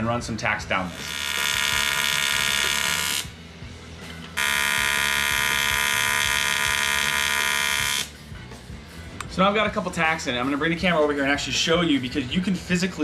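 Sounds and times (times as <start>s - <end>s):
welding arc buzzing: 0.7s - 3.4s, 4.3s - 8.2s.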